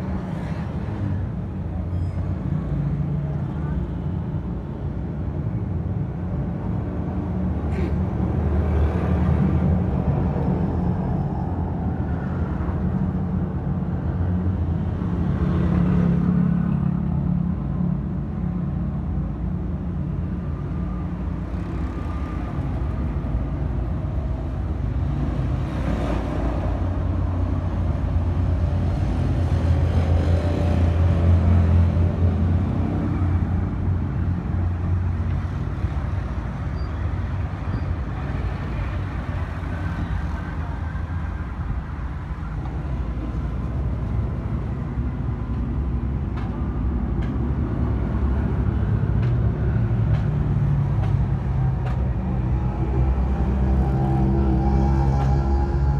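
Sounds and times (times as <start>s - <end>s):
street traffic rumbling: 0.0s - 55.9s
motorcycles passing: 51.6s - 55.9s.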